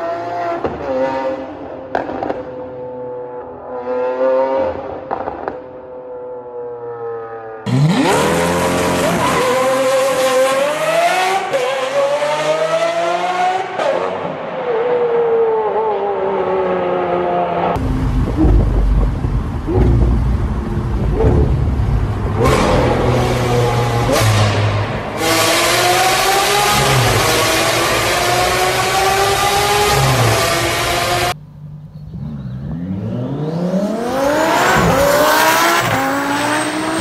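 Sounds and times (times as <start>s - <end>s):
car engine at full throttle: 16.5s - 37.0s.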